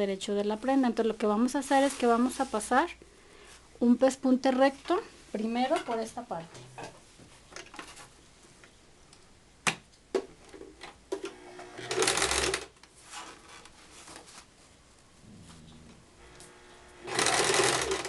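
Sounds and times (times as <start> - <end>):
sewing machine stitching: 11.5 - 12.7, 17.0 - 18.0.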